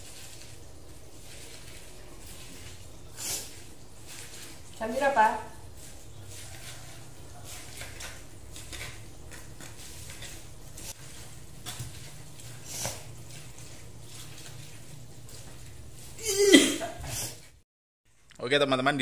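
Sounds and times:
spoon scraping in a bowl: 5.6s - 16.2s.

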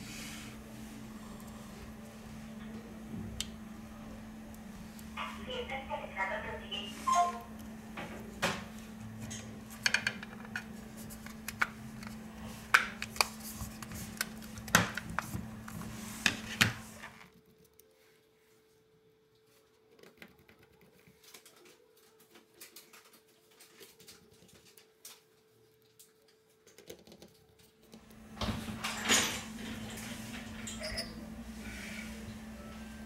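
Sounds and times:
steady low hum: 0.0s - 18.0s, 27.9s - 33.0s.

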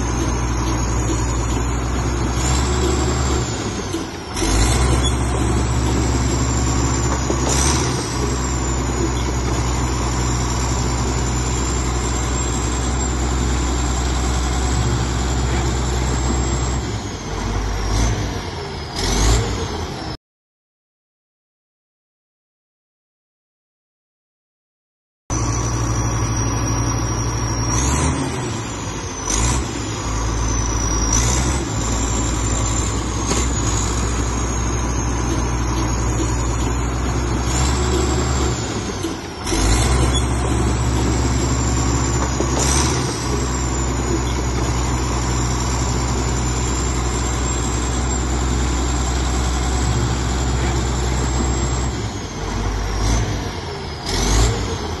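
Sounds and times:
bulldozer diesel engine droning: 0.0s - 20.2s, 25.3s - 55.0s
high engine whine: 25.3s - 55.0s.

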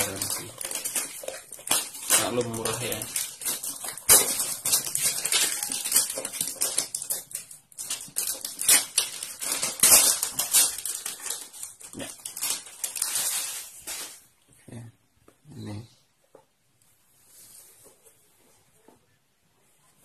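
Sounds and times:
plastic shrink wrap crinkling: 0.0s - 14.4s.

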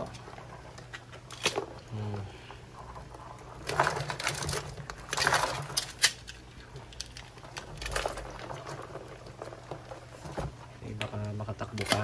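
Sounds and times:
crabs clattering in plastic bucket: 2.9s - 10.6s.

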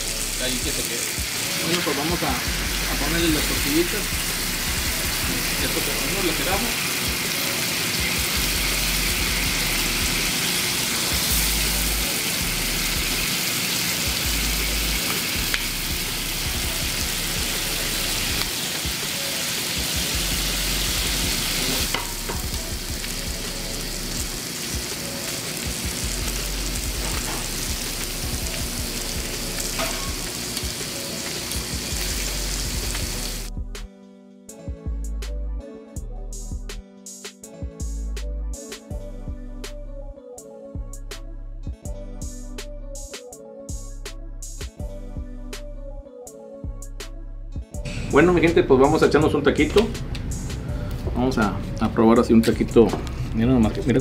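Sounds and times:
tortillas sizzling on griddle: 0.0s - 33.5s.

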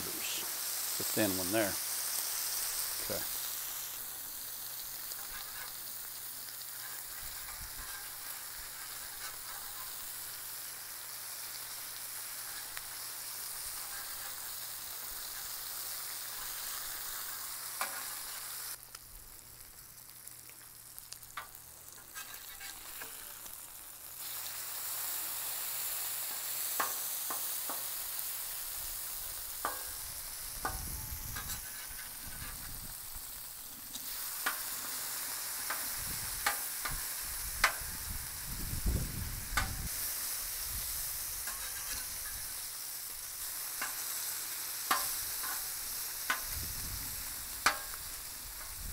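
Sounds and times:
bacon sizzling on griddle: 0.0s - 48.9s
metal spatula scraping steel: 4.8s - 10.4s, 11.5s - 18.4s, 21.4s - 23.5s, 29.6s - 30.0s, 30.6s - 32.9s, 41.4s - 42.6s, 44.9s - 46.6s.

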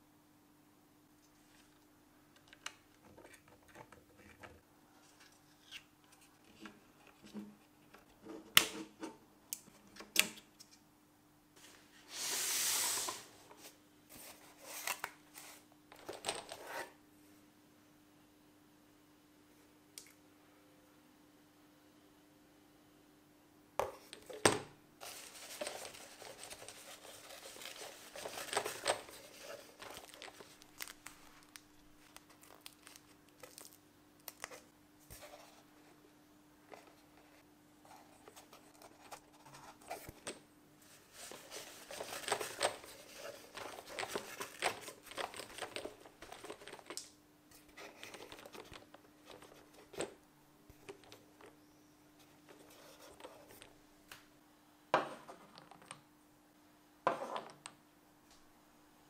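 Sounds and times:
faint steady hum: 0.0s - 59.0s
cardboard rustling and crinkling: 25.0s - 33.7s, 40.9s - 47.0s.

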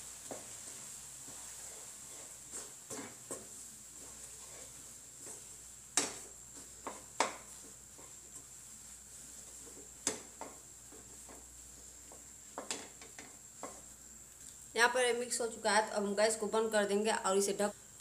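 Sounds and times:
spatula stirring thick dough: 0.0s - 14.2s
spatula knocking against pan: 6.8s - 7.5s.

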